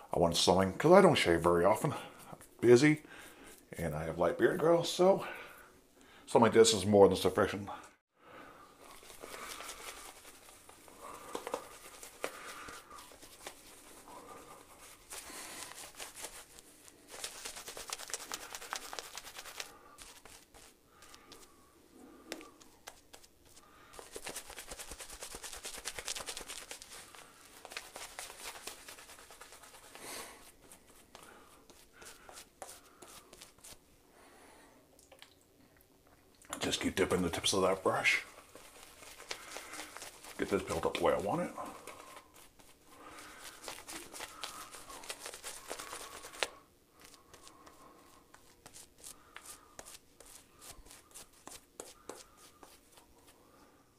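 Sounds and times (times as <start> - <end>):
shaving brush swirling lather: 8.8 - 21.5, 23.5 - 33.8, 36.6 - 53.4.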